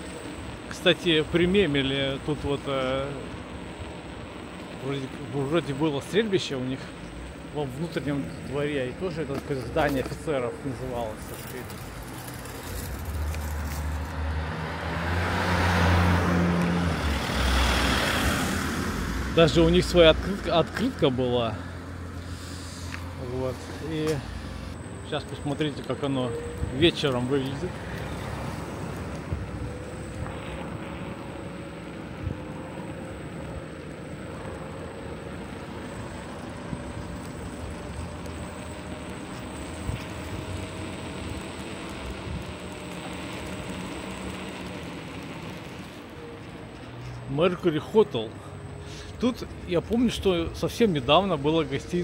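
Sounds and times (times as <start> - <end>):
faint rising whine: 0.0 - 52.0
moving vehicle rumble: 0.0 - 52.0
car passing by: 13.1 - 20.4.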